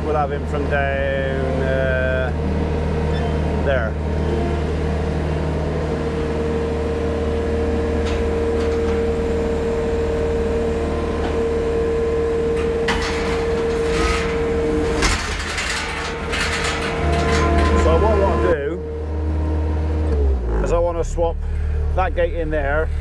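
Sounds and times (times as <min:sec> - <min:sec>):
diesel engine under load: 0:00.0 - 0:23.0
hydraulic whine: 0:00.0 - 0:23.0
steel gate rattling and clanking: 0:07.4 - 0:18.8.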